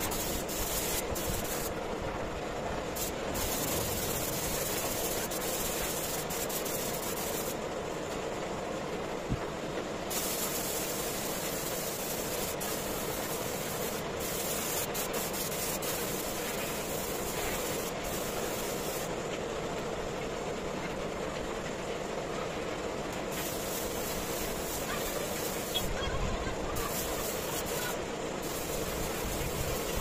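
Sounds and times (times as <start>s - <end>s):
spray gun hissing: 0.0s - 1.8s, 2.9s - 7.6s, 10.1s - 19.1s, 23.2s - 30.0s
steady rushing air noise: 0.0s - 30.0s.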